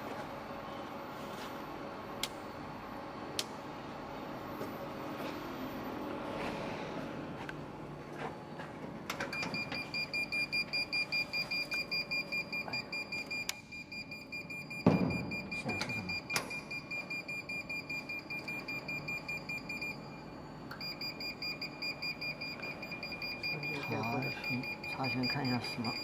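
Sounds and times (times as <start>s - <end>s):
alarm beeping: 9.3s - 20.2s, 20.8s - 26.0s.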